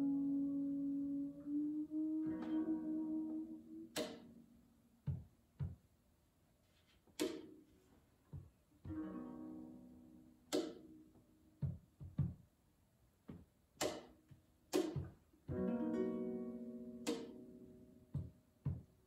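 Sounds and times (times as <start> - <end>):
percussive strikes on guitar: 2.2 - 4.4, 10.4 - 12.4, 14.7 - 18.9.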